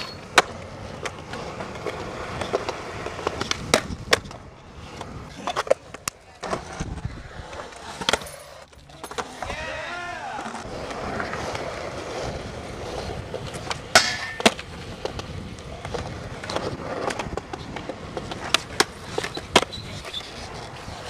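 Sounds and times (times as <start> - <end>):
skateboard wheels rolling on concrete: 0.0 - 21.0
skateboard tail snaps and landings: 3.3 - 4.4, 13.6 - 15.3.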